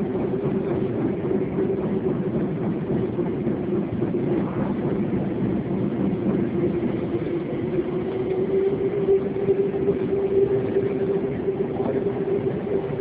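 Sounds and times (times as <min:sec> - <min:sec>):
mid-pitched whine: 0:00.0 - 0:13.0
subway train running noise: 0:00.0 - 0:13.0.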